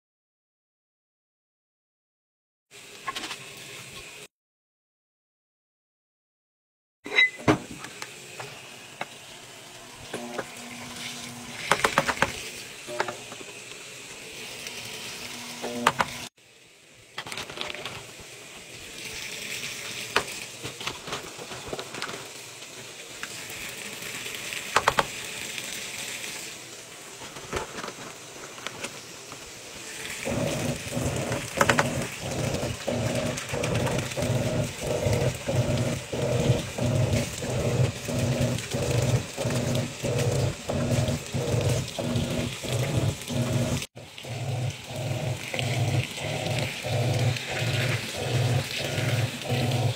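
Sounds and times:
washing machine agitating hum: 0:07.1 - 0:16.4, 0:17.1 - 0:49.9
water pouring into washing machine: 0:21.3 - 0:26.6, 0:29.8 - 0:49.9.

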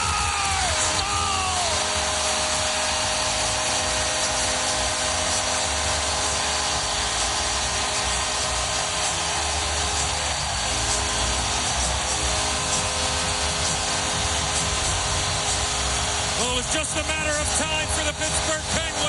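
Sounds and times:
crowd cheering: 0:00.0 - 0:14.7.

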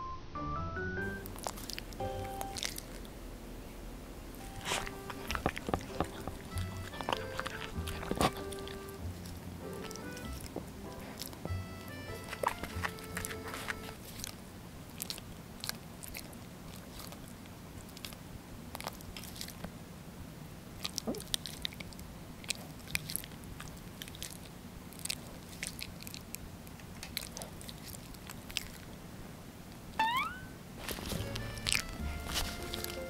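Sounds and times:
dog licking lips: 0:01.2 - 0:03.2, 0:04.4 - 0:18.2, 0:20.8 - 0:28.9, 0:30.8 - 0:33.0.

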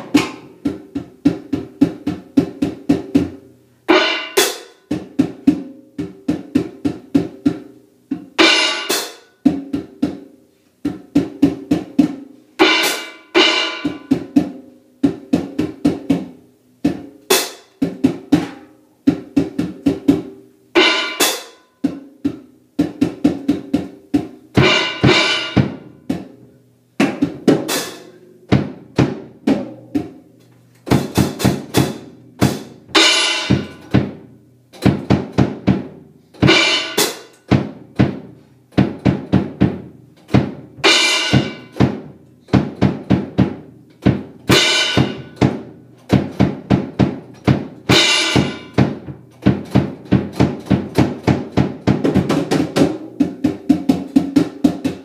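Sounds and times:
drum kit playing: 0:00.0 - 0:55.0
bass drum: 0:28.5 - 0:55.0.

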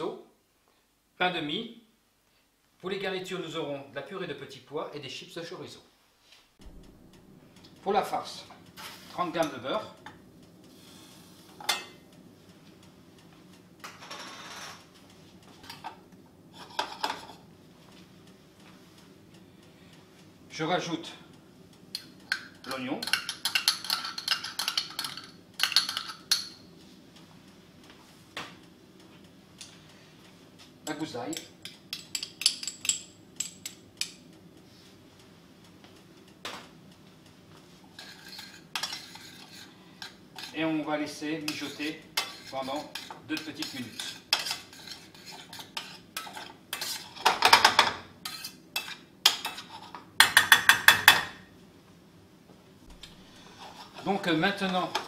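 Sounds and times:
faint steady hiss: 0:00.0 - 0:50.2
butter sizzling: 0:37.4 - 0:51.2
spoon scraping a metal pan: 0:37.9 - 0:40.6, 0:41.5 - 0:51.0, 0:53.3 - 0:55.0.

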